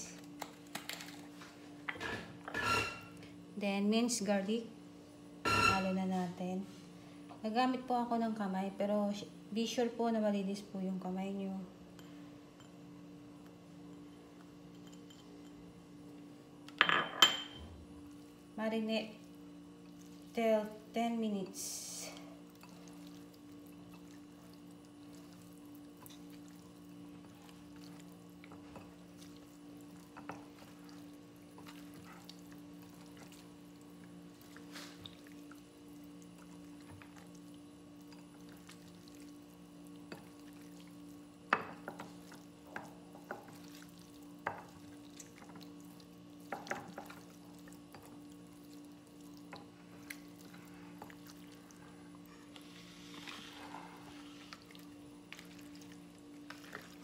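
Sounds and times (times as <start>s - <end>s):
hands mixing meat in marinade: 41.8s - 57.0s.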